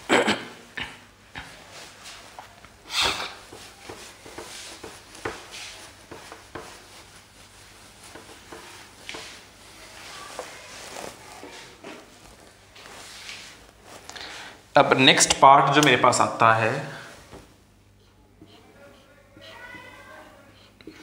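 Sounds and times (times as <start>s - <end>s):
hand wiping whiteboard: 3.1s - 14.1s.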